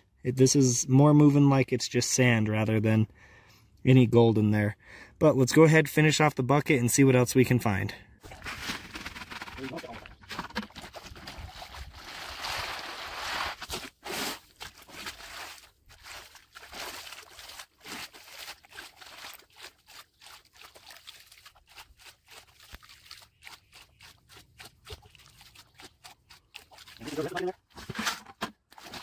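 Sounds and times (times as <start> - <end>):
water sloshing in a pan: 13.6 - 29.0.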